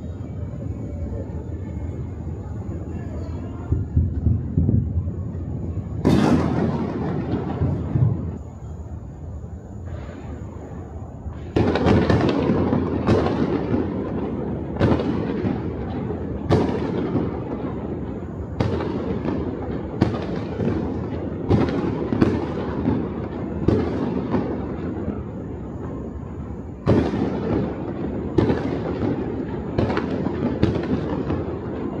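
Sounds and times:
fireworks crackling and rumbling: 0.0 - 32.0
sharp firework bangs: 5.6 - 8.6, 9.8 - 32.0.

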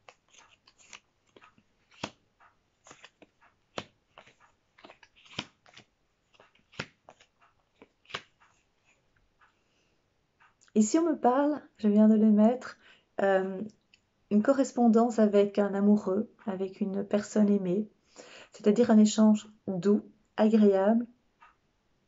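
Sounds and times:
cards being shuffled: 0.0 - 9.0.

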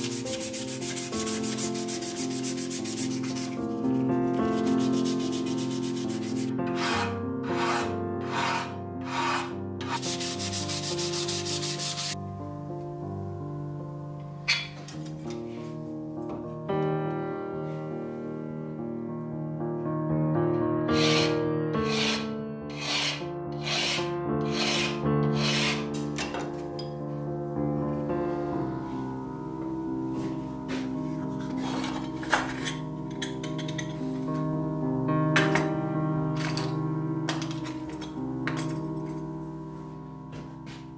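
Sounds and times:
sandpaper rubbing on wood: 0.0 - 3.6, 4.4 - 12.2, 20.9 - 25.9
soft background music: 0.0 - 40.9
file rasping on steel: 4.6 - 12.2, 20.9 - 26.0.

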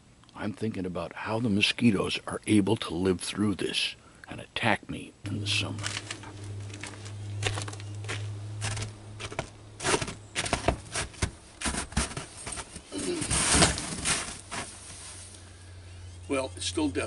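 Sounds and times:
steady low hum: 0.0 - 17.0
footsteps crunching in snow: 5.3 - 15.4
camp chair rustling and creaking: 5.3 - 15.6.

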